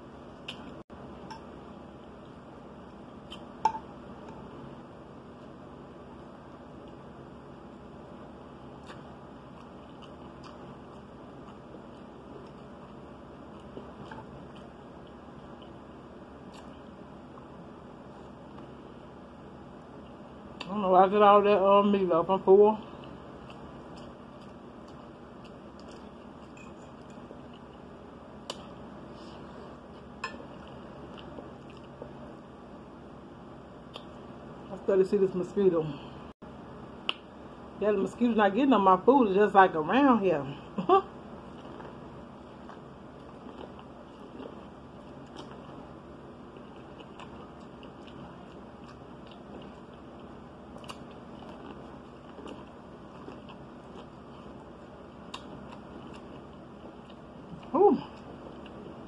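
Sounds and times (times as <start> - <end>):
low background hum: 0.0 - 59.0
chewing corn kernels: 8.7 - 15.8, 22.9 - 28.8, 30.0 - 32.2, 41.4 - 59.0.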